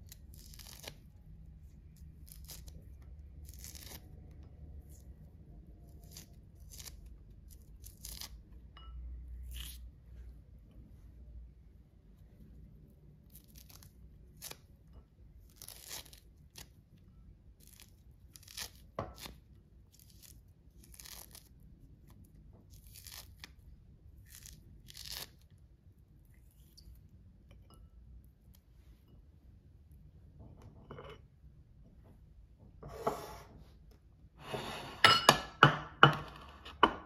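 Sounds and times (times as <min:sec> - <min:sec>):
fruit peel tearing: 0:00.0 - 0:01.2, 0:01.8 - 0:05.2, 0:05.8 - 0:08.5, 0:09.4 - 0:09.8, 0:13.2 - 0:14.8, 0:15.4 - 0:16.9, 0:17.6 - 0:25.6.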